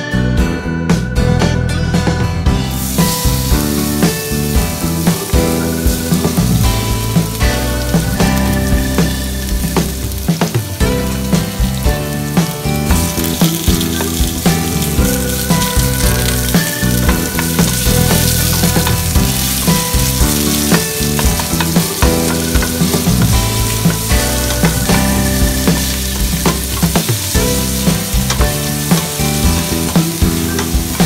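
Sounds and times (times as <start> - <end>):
background music: 0.0 - 31.0
onions sizzling in oil: 2.7 - 31.0
wooden spoon stirring: 12.4 - 31.0.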